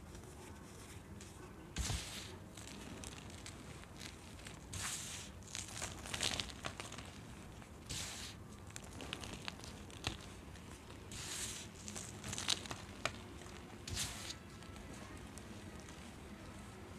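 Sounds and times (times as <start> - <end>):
powder crackling: 0.6 - 16.9
baking soda crunching in hands: 1.8 - 16.4.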